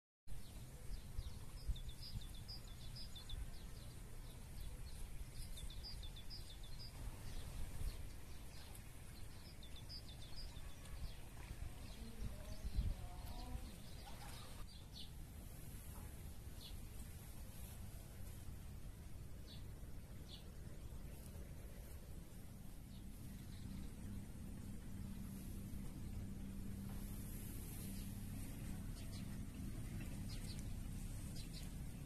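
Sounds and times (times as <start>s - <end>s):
low background rumble: 0.3s - 32.0s
songbirds chirping: 0.3s - 32.0s
low rising and falling bird call: 22.8s - 32.0s.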